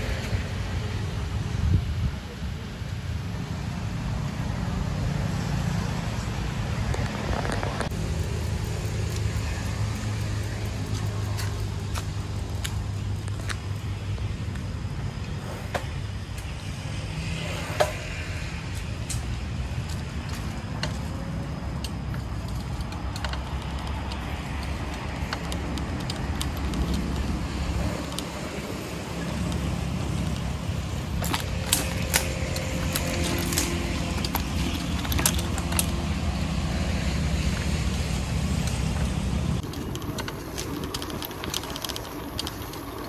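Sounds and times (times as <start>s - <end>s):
low road rumble: 0.0s - 43.0s
light clicks and rattles: 19.0s - 36.8s, 37.4s - 43.0s.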